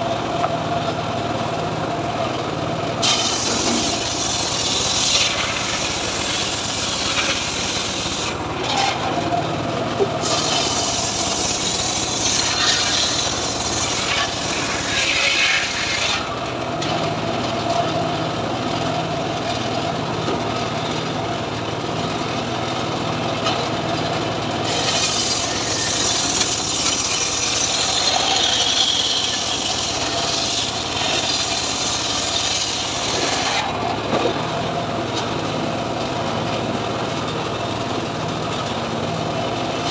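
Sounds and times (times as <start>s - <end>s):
engine running steadily: 0.0s - 39.9s
saw blade rasping through wood: 3.0s - 9.4s, 10.0s - 16.4s, 24.6s - 34.0s.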